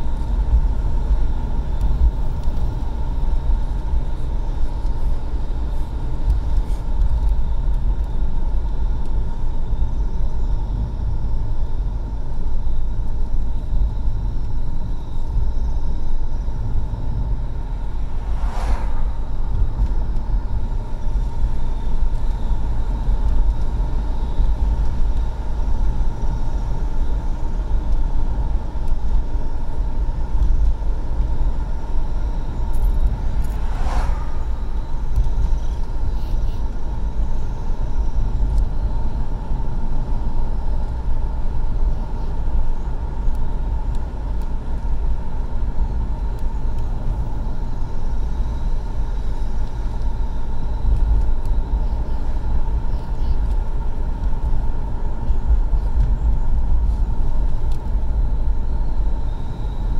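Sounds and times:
car road and engine rumble: 0.0s - 59.9s
brief swishes: 17.9s - 19.5s, 33.2s - 34.8s.

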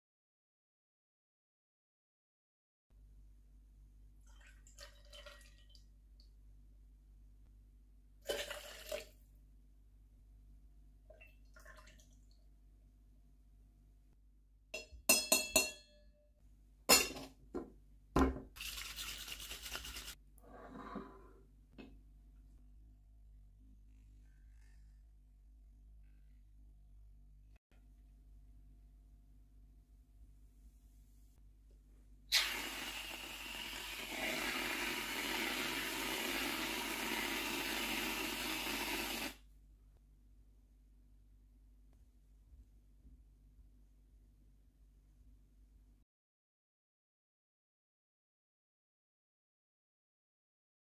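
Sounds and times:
ice rattling in shaker: 18.6s - 20.2s.

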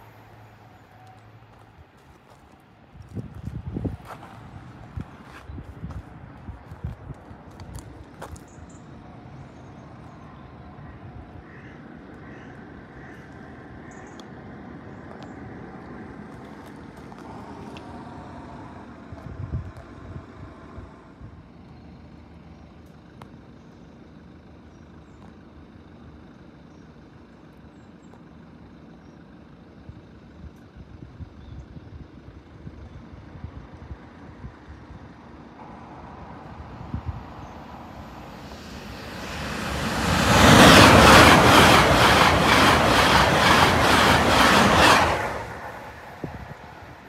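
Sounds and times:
train passing at speed: 0.0s - 21.6s, 33.2s - 47.0s
wheels clattering over track: 38.4s - 46.2s.

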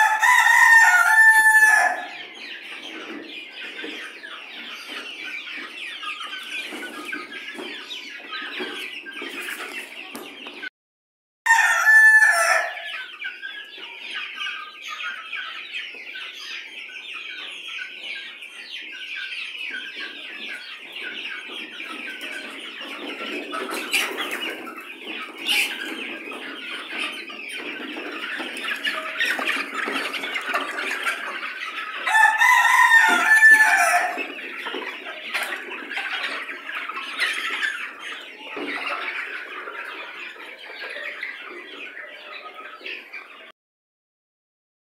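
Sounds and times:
rooster crowing: 0.0s - 2.1s, 11.5s - 12.8s, 32.1s - 34.2s
chickens clucking: 0.0s - 10.7s, 11.5s - 43.6s.

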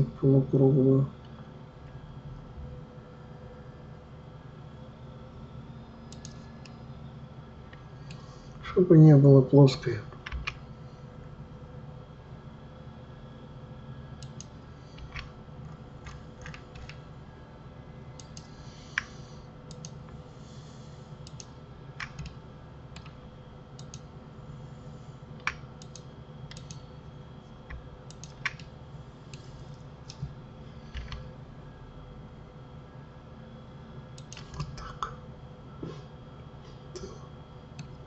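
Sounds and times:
faint steady hum: 0.0s - 38.0s
keyboard and mouse clicking: 6.1s - 6.8s, 10.2s - 10.6s, 14.2s - 15.3s, 16.0s - 17.0s, 19.7s - 20.0s, 21.2s - 22.4s, 23.0s - 23.2s, 23.8s - 24.1s, 25.4s - 26.8s, 27.7s - 28.7s, 30.9s - 31.3s, 34.2s - 34.9s.

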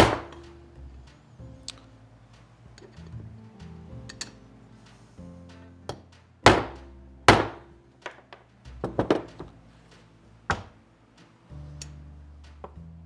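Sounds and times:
hammer striking metal: 0.0s - 1.2s, 5.9s - 9.5s.

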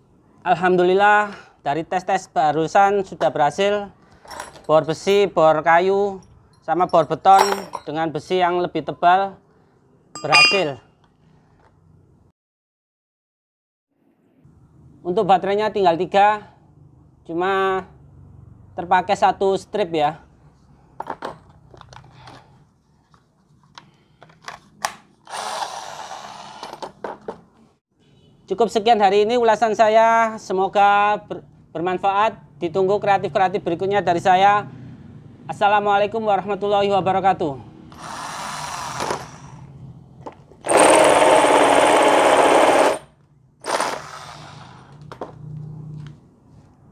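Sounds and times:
electric drill motor running: 25.3s - 26.8s, 37.9s - 39.6s, 40.7s - 44.8s.

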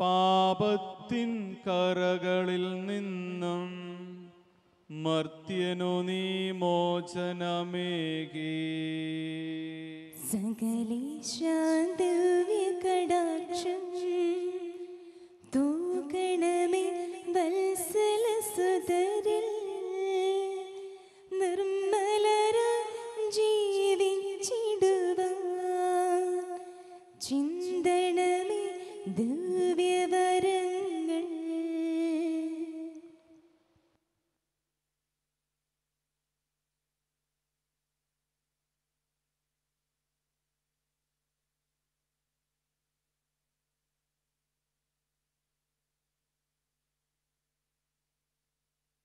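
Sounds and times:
man chanting: 0.0s - 4.3s, 4.9s - 10.2s
woman singing a hymn: 10.2s - 14.8s, 15.6s - 26.6s, 27.2s - 33.0s.

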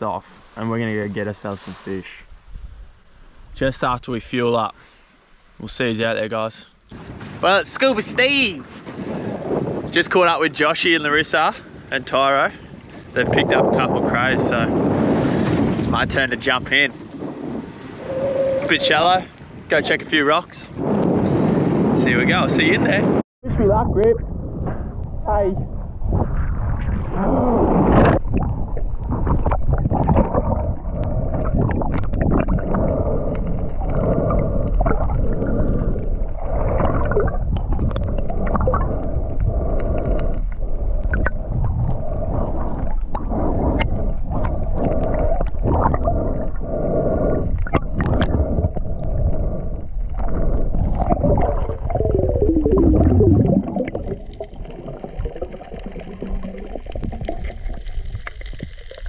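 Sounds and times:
underwater rumbling and gurgling: 6.7s - 59.0s
bubble clicks: 40.9s - 41.4s, 50.8s - 59.0s.

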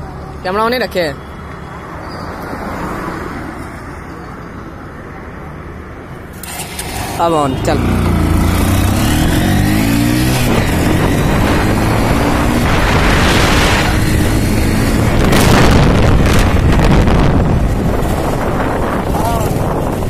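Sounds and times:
motorbike engine: 6.3s - 20.0s
wind rushing over microphone: 7.6s - 20.0s.

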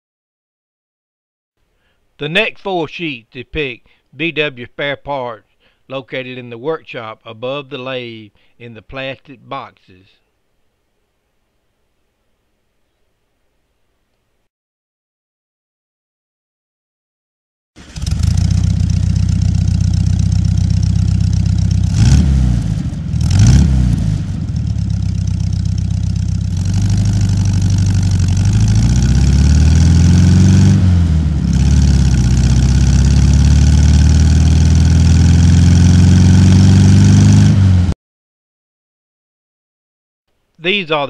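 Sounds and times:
engine revving: 17.8s - 38.0s.

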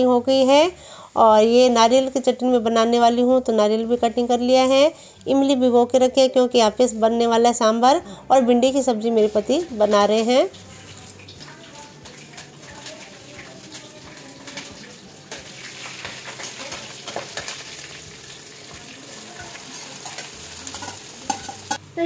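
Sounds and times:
hot oil sizzling: 8.9s - 22.0s
metal spatula scraping a pan: 19.6s - 21.8s.

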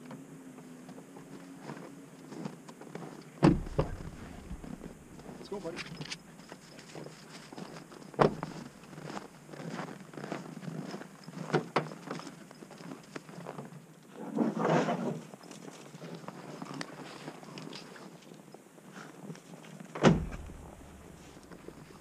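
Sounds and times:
car door thump: 3.4s - 5.4s, 20.0s - 21.8s
tailgate clunks: 3.4s - 5.4s, 20.0s - 22.0s.

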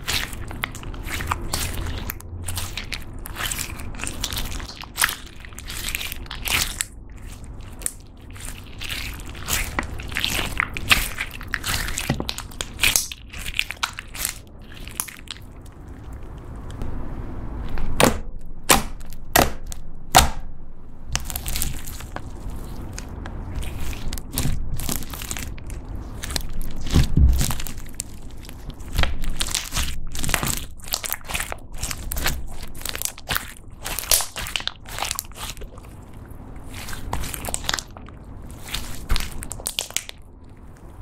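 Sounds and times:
crunchy slime crackling: 0.0s - 16.8s, 21.1s - 41.0s
dull thud: 26.9s - 27.5s.

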